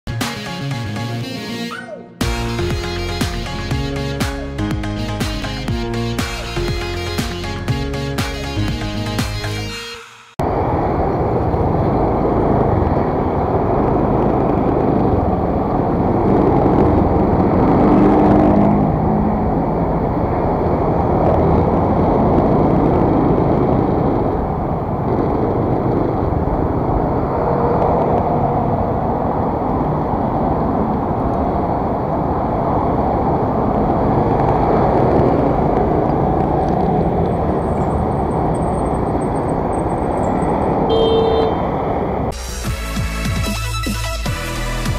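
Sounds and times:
road noise: 0:00.1 - 0:44.9
passing vehicles: 0:02.2 - 0:44.9
wind rumble: 0:10.4 - 0:42.4
scooter engine: 0:10.6 - 0:42.3.

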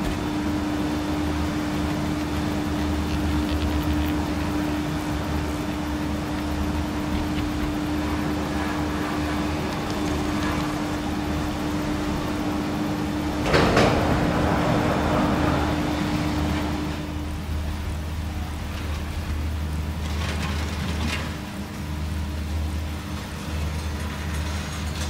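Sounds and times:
gondola lift machinery hum: 0:00.0 - 0:25.0
cabin clattering clank: 0:13.4 - 0:14.7.

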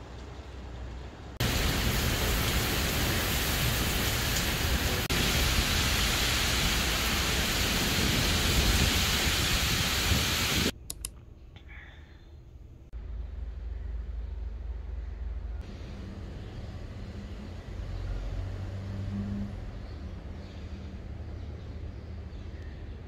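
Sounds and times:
heavy rain pouring: 0:01.4 - 0:10.7.

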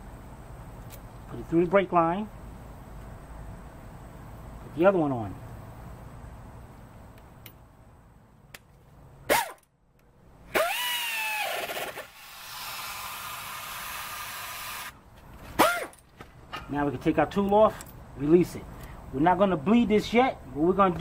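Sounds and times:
air ratchet whine: 0:10.5 - 0:15.0.

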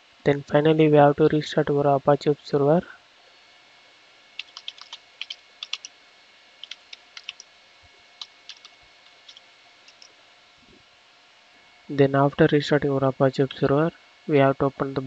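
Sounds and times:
computer keyboard typing: 0:04.4 - 0:05.9, 0:06.6 - 0:07.5, 0:08.2 - 0:10.1.

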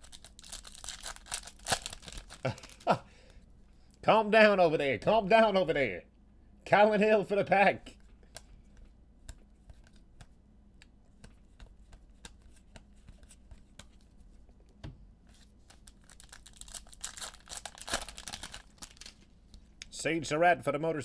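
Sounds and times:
foil wrapper crinkling and tearing: 0:00.0 - 0:03.0, 0:15.7 - 0:19.2.

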